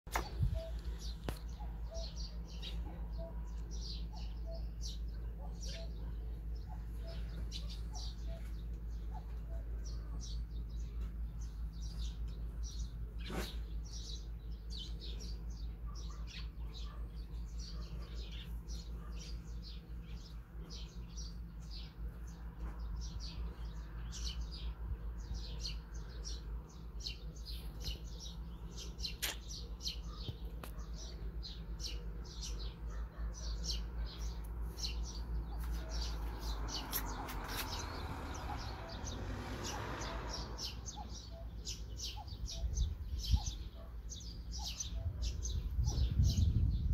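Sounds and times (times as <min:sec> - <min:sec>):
small birds chirping: 0:00.1 - 0:46.9
steady low rumble: 0:45.0 - 0:46.9.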